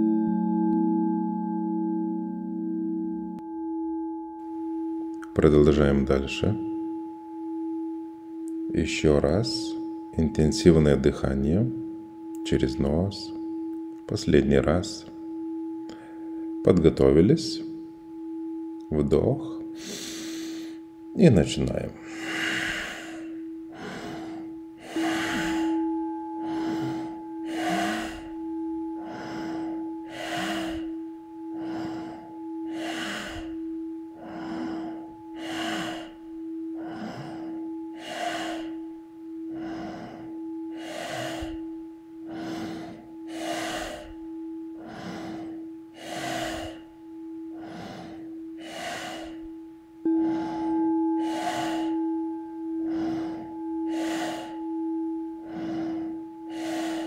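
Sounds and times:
singing bowl ringing: 0.0s - 57.0s
forceful nasal breathing: 19.8s - 20.8s, 22.0s - 46.9s, 47.5s - 57.0s.

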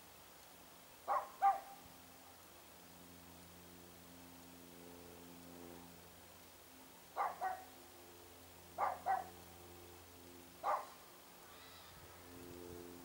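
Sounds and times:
low steady hum: 0.0s - 13.0s
dog barking: 1.1s - 1.8s, 7.2s - 7.7s, 8.8s - 9.3s, 10.6s - 11.0s.

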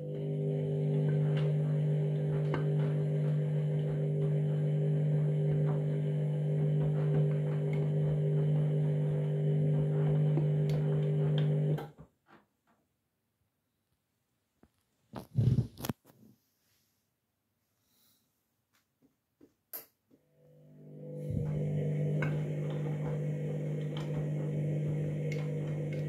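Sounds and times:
washing machine humming: 0.0s - 11.8s, 20.5s - 26.0s.

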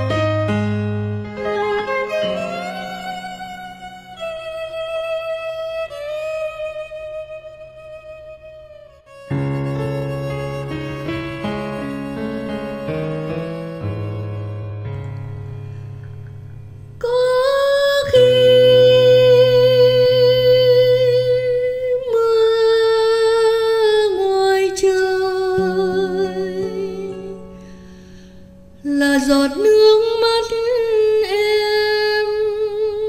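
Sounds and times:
woman singing with vibrato: 17.0s - 27.4s, 28.8s - 33.0s.

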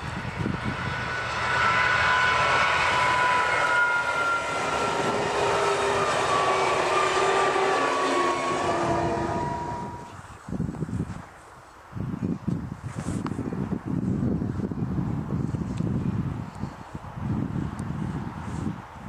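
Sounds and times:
diesel engine noise: 0.0s - 10.2s
high whining tones: 0.0s - 10.2s.

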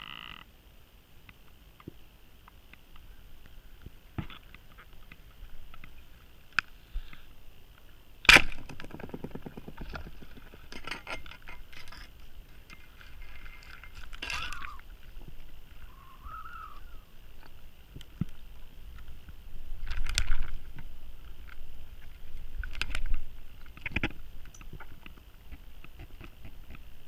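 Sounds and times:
scattered underwater clicks and knocks: 1.2s - 7.2s, 8.2s - 15.8s, 17.4s - 27.0s
speargun firing underwater: 8.2s - 9.9s.

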